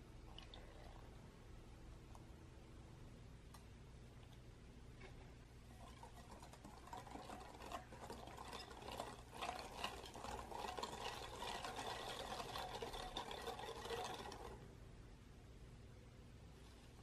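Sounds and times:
whisk clicking against glass bowl: 0:05.8 - 0:14.6.

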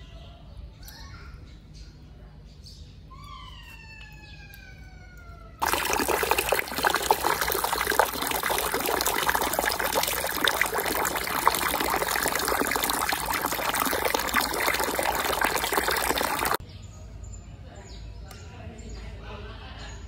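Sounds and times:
water running and splashing: 0:05.6 - 0:16.6.

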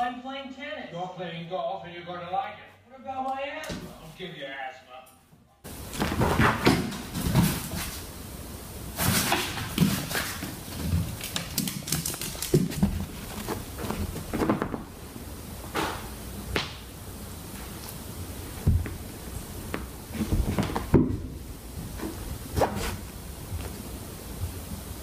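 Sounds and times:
fabric rustling: 0:09.0 - 0:15.0.

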